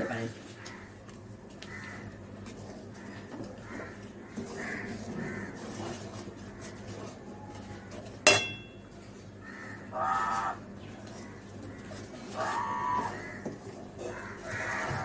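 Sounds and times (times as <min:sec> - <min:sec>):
wooden spatula stirring thick paste: 0:02.3 - 0:08.2, 0:11.0 - 0:15.0
metallic knock against pan: 0:08.3 - 0:08.8.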